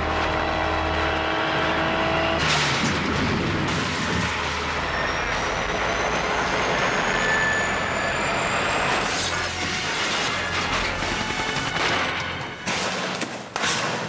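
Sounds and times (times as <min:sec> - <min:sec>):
sharp bangs: 0:02.2 - 0:05.8, 0:08.8 - 0:14.0
helicopter crashing clatter: 0:02.3 - 0:06.1, 0:08.8 - 0:14.0.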